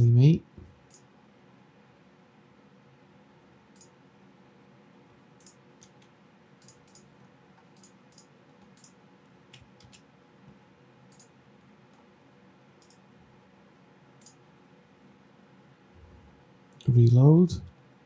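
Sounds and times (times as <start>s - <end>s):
low room hum: 0.0s - 18.0s
computer mouse clicks: 0.8s - 1.1s, 3.7s - 4.0s, 5.4s - 10.1s, 11.1s - 12.1s, 12.8s - 13.1s, 14.2s - 14.4s.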